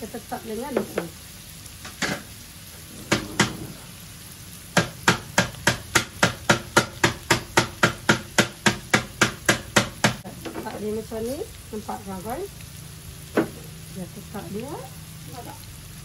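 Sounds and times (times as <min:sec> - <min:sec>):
knife chopping on cutting board: 0:03.1 - 0:03.7.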